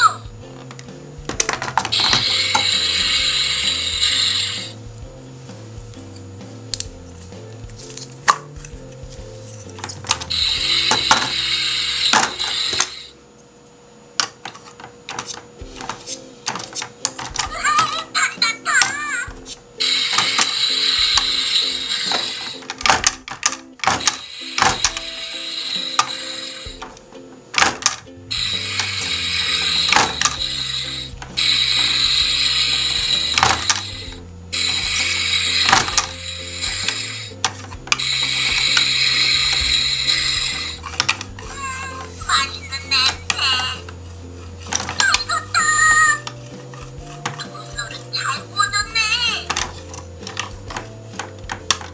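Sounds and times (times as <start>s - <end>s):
toy mechanism whirring: 0.0s - 5.0s, 6.0s - 13.2s, 14.2s - 51.9s
soft background music: 0.0s - 51.9s
plastic toy clicks and taps: 49.4s - 51.9s.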